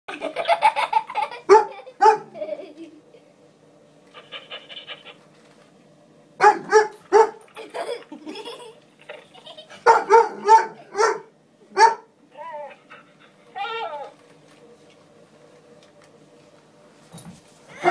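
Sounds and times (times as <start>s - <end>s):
dog barking: 1.5s - 2.3s, 6.4s - 7.4s, 9.8s - 12.1s.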